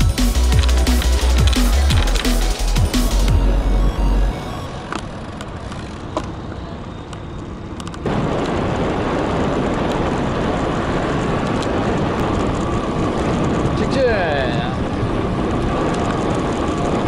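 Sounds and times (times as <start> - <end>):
wind noise on microphone: 7.5 - 17.0.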